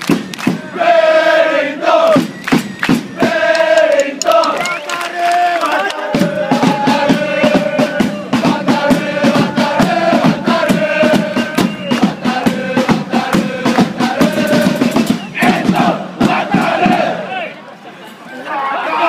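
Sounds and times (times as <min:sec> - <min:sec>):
driving drum beat: 0:00.0 - 0:00.8, 0:02.1 - 0:04.7, 0:06.0 - 0:17.2
crowd singing a chant: 0:00.4 - 0:17.6.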